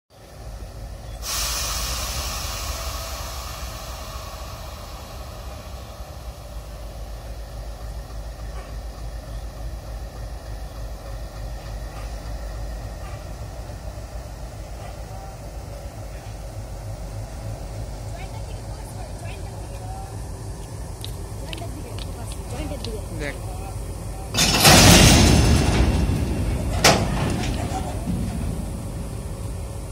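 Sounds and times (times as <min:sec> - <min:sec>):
diesel locomotive engine rumbling: 0:00.1 - 0:29.9
air brake release hiss: 0:01.1 - 0:07.7.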